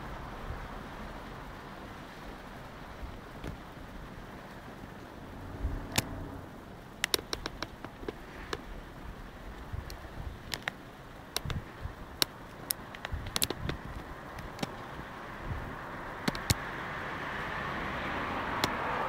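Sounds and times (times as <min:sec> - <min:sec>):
sharp clicks and light knocks: 0:03.4 - 0:03.7, 0:05.9 - 0:06.2, 0:06.9 - 0:15.0, 0:16.2 - 0:16.7.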